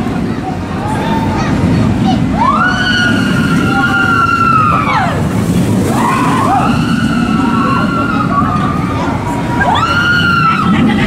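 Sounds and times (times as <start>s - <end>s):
roller coaster train rumbling: 0.0s - 11.0s
riders screaming: 2.4s - 10.9s.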